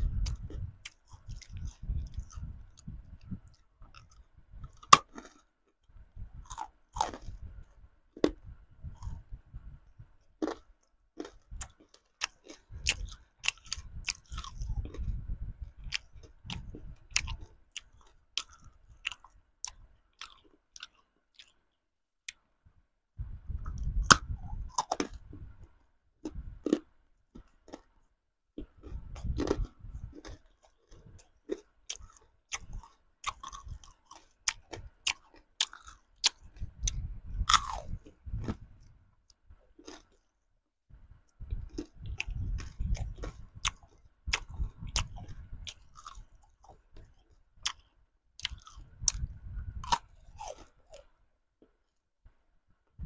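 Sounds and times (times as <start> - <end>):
person chewing: 0.0 - 9.4, 10.0 - 21.7, 23.6 - 25.6, 26.2 - 28.0, 28.6 - 40.2, 41.3 - 51.1
lollipop cracking and crunching: 3.5 - 5.8, 23.7 - 25.2, 28.6 - 38.0, 48.4 - 51.1.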